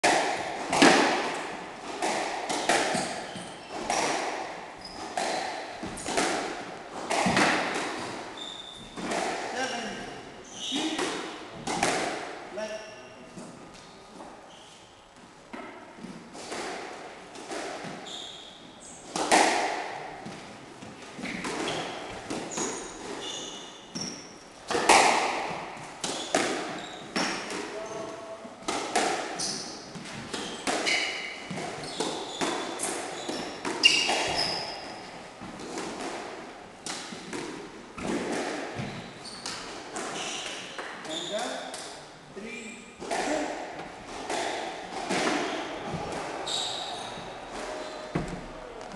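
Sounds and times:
squash ball cracking off rackets: 0.0 - 8.2
squash ball hits echoing: 0.0 - 9.8, 10.7 - 12.4, 19.1 - 27.8, 28.6 - 41.9, 43.0 - 48.9
shoes squeaking on wooden floor: 2.0 - 6.2, 8.0 - 9.2, 10.4 - 11.1, 17.8 - 19.1, 20.2 - 24.3, 26.1 - 28.3, 29.4 - 35.6, 38.0 - 41.6, 43.2 - 48.9.

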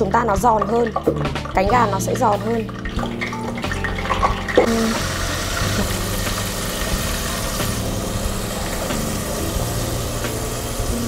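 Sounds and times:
chicken deep-frying in oil: 2.4 - 11.0.

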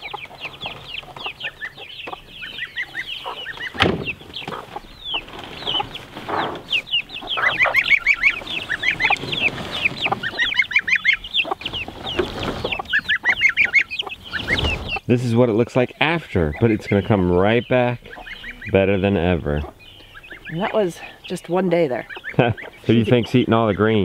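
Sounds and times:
chicks peeping: 0.0 - 24.0
rustling and scraping: 3.2 - 15.1
loud thump: 3.7 - 4.6.

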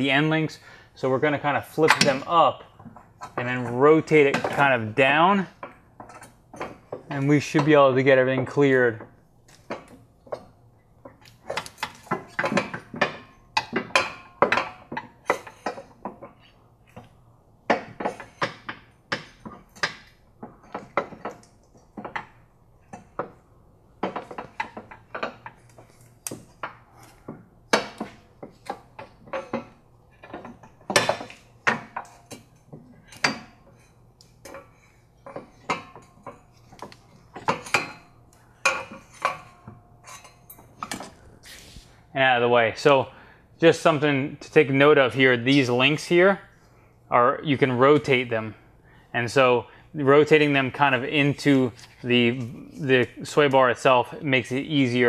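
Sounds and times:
sway bar clanking and rattling: 1.5 - 41.3.

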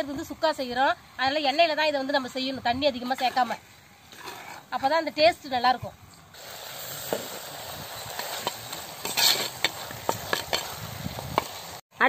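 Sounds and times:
meat sizzling in hot oil: 6.4 - 11.8
metal ladle scraping a pot: 7.0 - 11.5.

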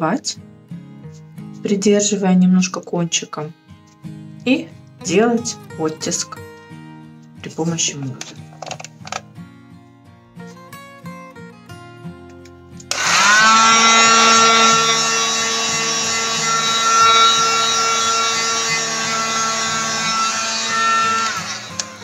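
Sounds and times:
heat gun fan whining and hissing: 12.9 - 22.0.

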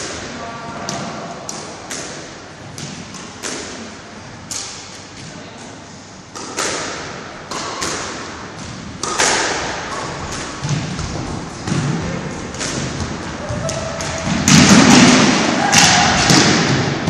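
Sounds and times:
squash ball knocks: 6.3 - 17.0.

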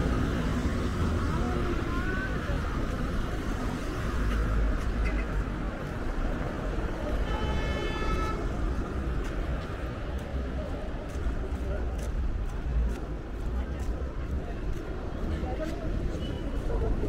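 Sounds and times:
city street traffic rumble: 0.0 - 17.0
vehicle horn: 7.2 - 8.5.

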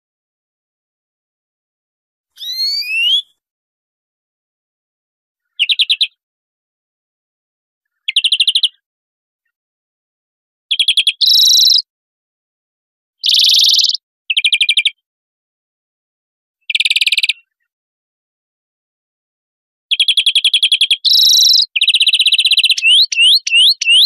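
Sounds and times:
finch twittering trills: 11.2 - 11.8, 21.1 - 24.0.

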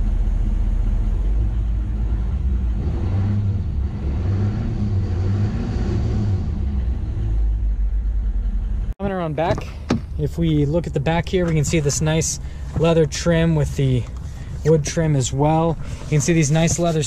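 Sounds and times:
diesel engine idling: 0.0 - 2.8, 6.6 - 17.0.

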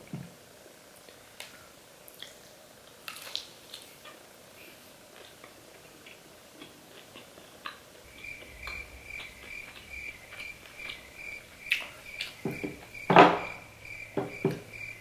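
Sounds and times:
low hum: 8.0 - 15.0
quiet high chirp: 8.1 - 15.0.

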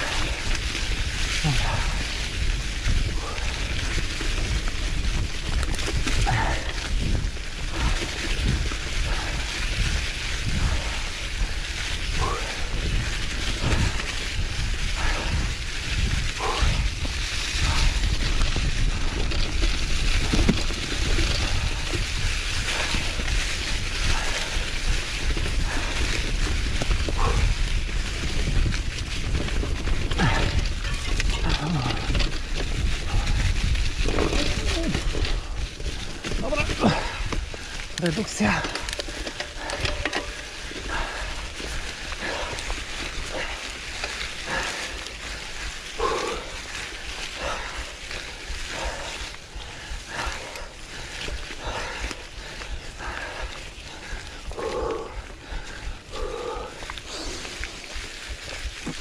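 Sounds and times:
bike tyres crackling through leaves: 0.0 - 59.0.

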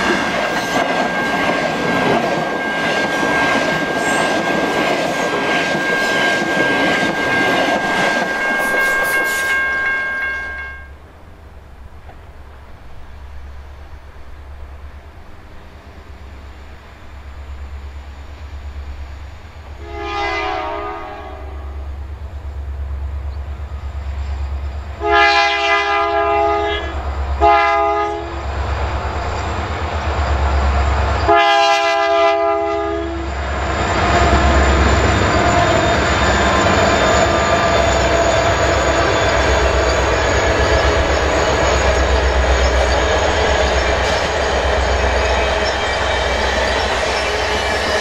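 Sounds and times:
diesel locomotive engine rumble: 0.0 - 48.0
train wheel noise: 0.0 - 48.0
train air horn blasts: 8.2 - 11.0, 19.7 - 22.0, 25.0 - 28.5, 31.2 - 33.4.

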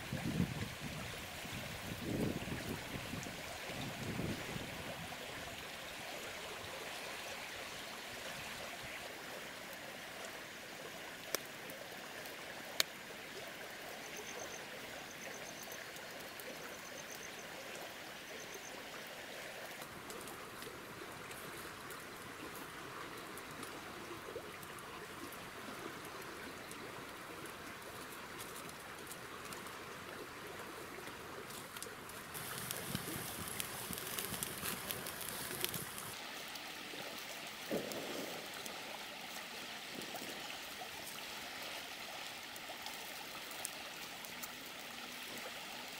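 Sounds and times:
small stream rushing: 0.0 - 45.9.

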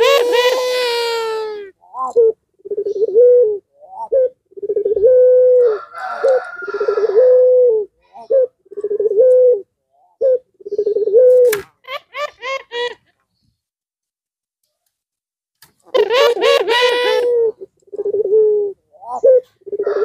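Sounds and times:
dove cooing: 0.0 - 11.6, 15.9 - 20.0.

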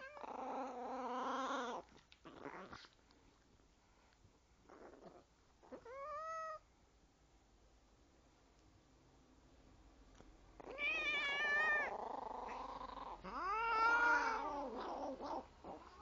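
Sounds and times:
cat yowling: 10.6 - 12.0, 13.3 - 14.8.

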